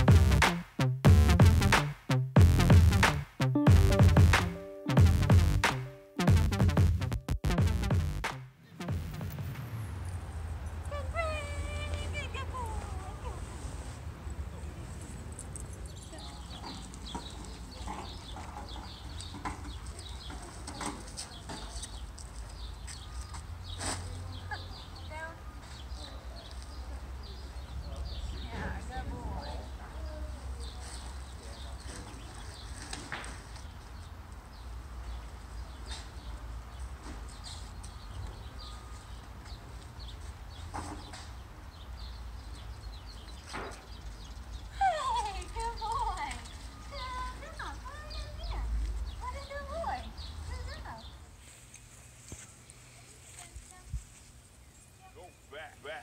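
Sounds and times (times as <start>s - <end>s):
steady low rumble: 0.0s - 12.1s
small birds chirping: 14.4s - 56.0s.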